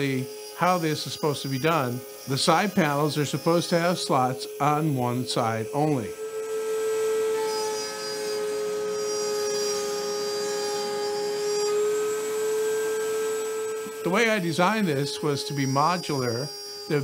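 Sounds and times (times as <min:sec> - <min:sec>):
wood router milling plywood: 0:00.0 - 0:17.0.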